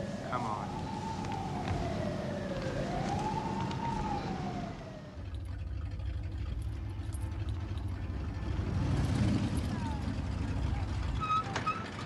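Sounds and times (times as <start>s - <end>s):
siren wailing: 0.0s - 5.2s
car engine running: 5.2s - 11.2s.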